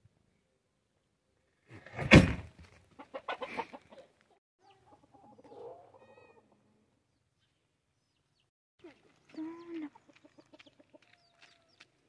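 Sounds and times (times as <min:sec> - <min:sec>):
chicken clucking: 0:02.9 - 0:06.9, 0:08.8 - 0:11.8.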